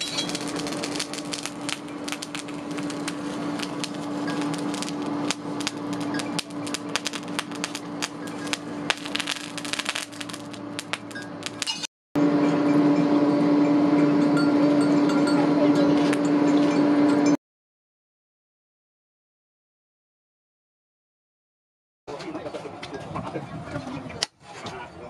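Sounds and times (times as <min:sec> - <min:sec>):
charcoal crackling and popping: 0:00.0 - 0:11.9
steady low hum: 0:00.1 - 0:17.4.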